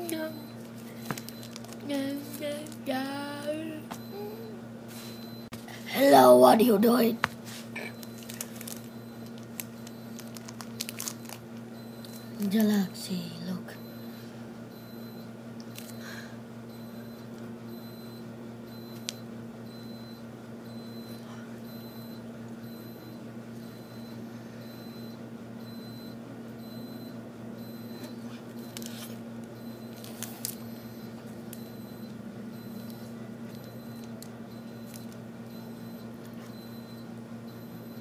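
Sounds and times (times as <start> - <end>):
steady low hum: 0.0 - 38.0
wrapper crinkling: 1.1 - 1.8, 8.0 - 11.4, 30.0 - 30.6.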